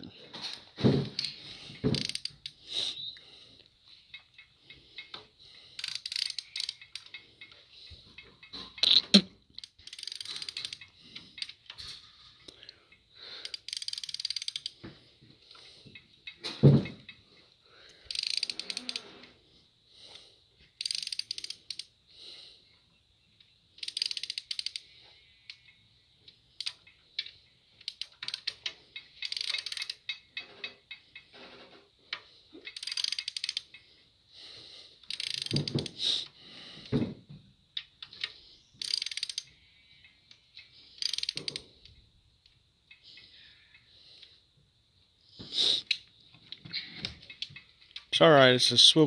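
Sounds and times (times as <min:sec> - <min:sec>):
ratchet clicking: 0:00.5 - 0:02.6, 0:05.8 - 0:07.6, 0:09.6 - 0:11.8, 0:13.4 - 0:14.8, 0:18.0 - 0:19.1, 0:20.7 - 0:21.9, 0:23.8 - 0:24.9, 0:26.6 - 0:31.2, 0:32.6 - 0:33.8, 0:35.0 - 0:36.3, 0:37.8 - 0:39.6, 0:40.6 - 0:41.8.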